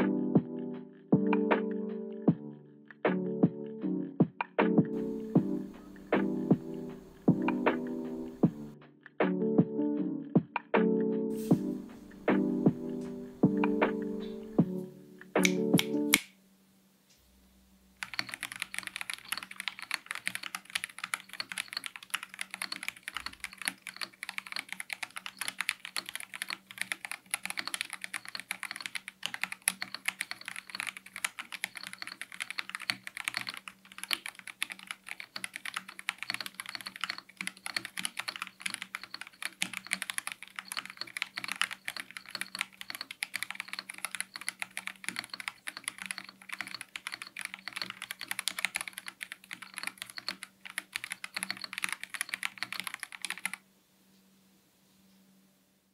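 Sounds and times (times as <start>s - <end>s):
mechanical keyboard typing: 13.5s - 14.6s, 18.0s - 53.6s.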